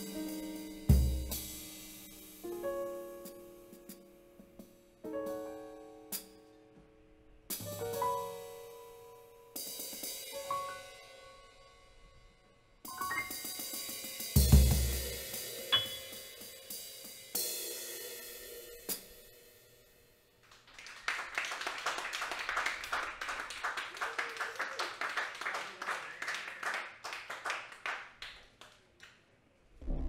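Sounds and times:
cymbal and drum taps: 15.8s - 16.3s.

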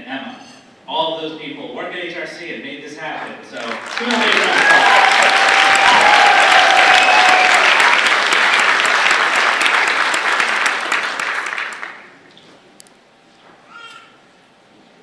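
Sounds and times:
audience applauding: 3.6s - 12.2s
whoops from audience: 4.3s - 8.1s.

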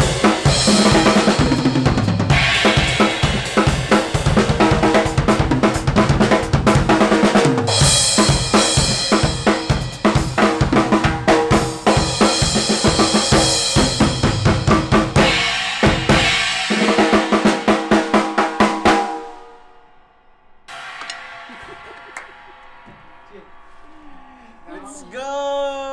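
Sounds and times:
drum kit playing fast groove: 0.0s - 19.1s
crash cymbals: 20.7s - 24.8s.

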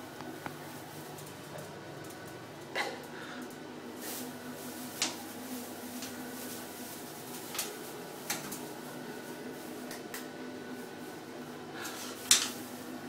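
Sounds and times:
hay rustling and crackling: 3.8s - 10.1s.

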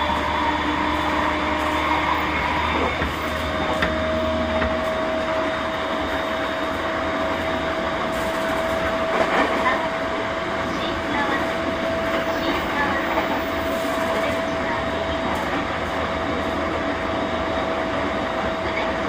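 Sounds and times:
electric train motor whine: 0.0s - 9.2s
rail and car noise: 0.0s - 19.0s.

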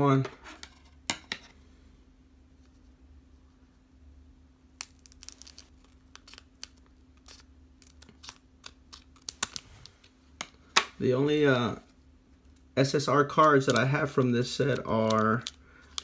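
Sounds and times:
faint steady hum: 0.0s - 16.0s
cards and foil packs crinkling: 4.8s - 10.2s, 12.8s - 16.0s.

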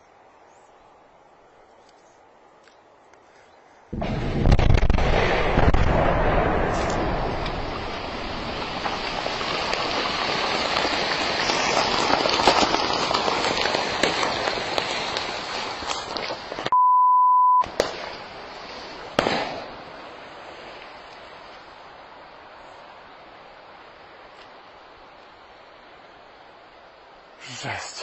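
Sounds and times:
crackling of small impacts: 6.6s - 16.7s
censor bleep: 16.7s - 17.6s.

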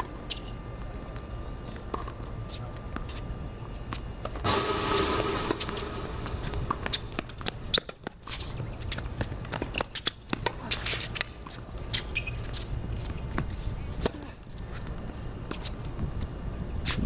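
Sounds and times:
low rumble: 4.4s - 7.7s
rushing noise: 4.4s - 7.7s.

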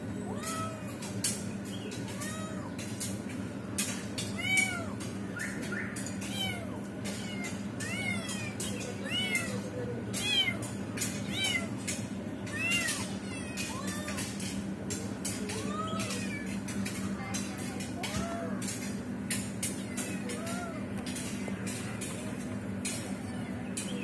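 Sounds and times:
kitten mewing: 12.5s - 14.4s.

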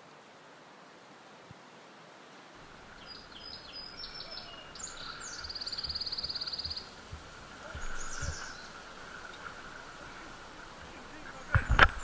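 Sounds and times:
songbirds singing: 2.6s - 12.0s
low dull thumps: 3.9s - 12.0s.

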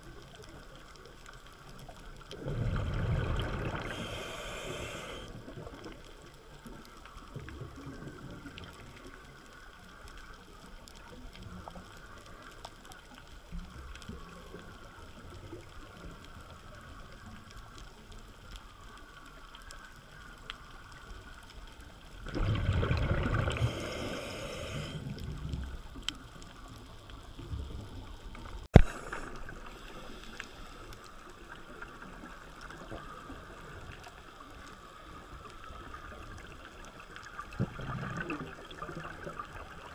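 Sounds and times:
underwater ambience: 0.0s - 39.9s
scuba exhaust bubbles rushing: 2.4s - 5.2s, 22.2s - 25.6s.

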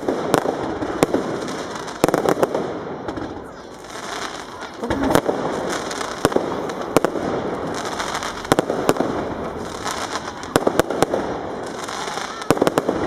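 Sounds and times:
fireworks bangs and cracks: 0.0s - 13.0s
steady hiss: 3.6s - 13.0s.

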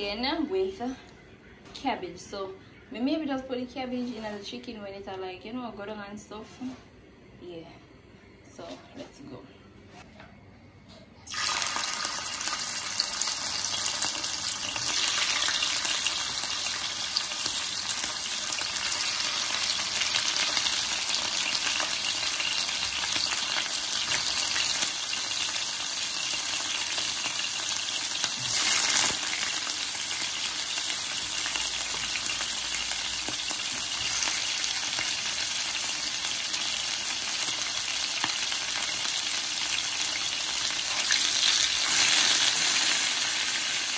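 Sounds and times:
chicken sizzling in hot oil: 11.3s - 43.9s.

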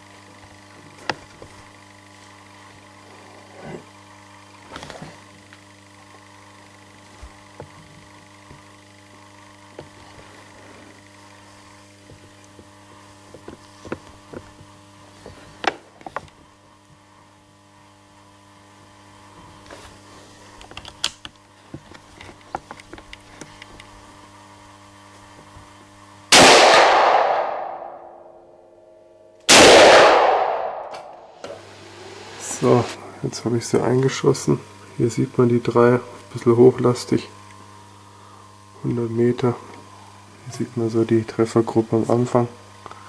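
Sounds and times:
steady low hum: 0.0s - 43.0s
rifle shot echoing: 26.3s - 28.2s, 29.5s - 31.3s.

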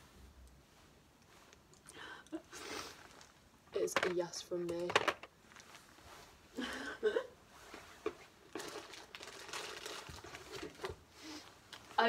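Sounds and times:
packaging rustling and crinkling: 4.8s - 6.0s, 7.6s - 11.1s.

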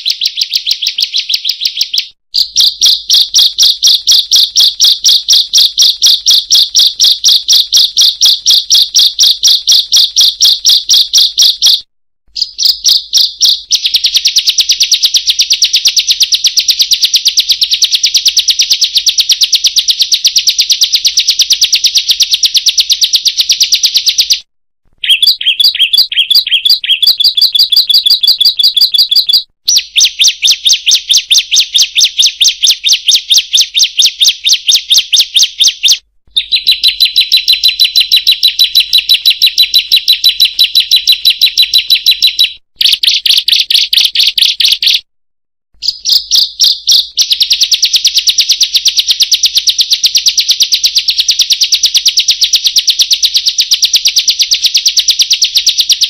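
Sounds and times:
bird singing rapid high notes: 0.0s - 15.9s, 25.0s - 45.0s, 45.8s - 47.4s.

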